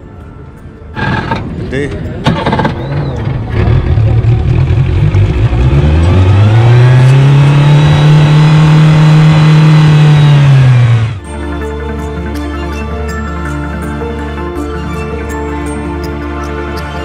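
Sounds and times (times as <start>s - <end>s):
outboard motor revving: 1.0s - 1.5s, 2.4s - 11.3s.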